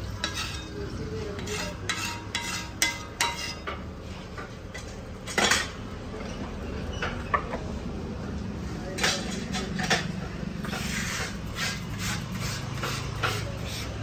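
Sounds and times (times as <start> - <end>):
metal utensils clinking on pan: 0.2 - 3.9, 4.7 - 5.8, 8.9 - 10.2
utensil clatter: 4.4 - 7.6, 8.9 - 14.0.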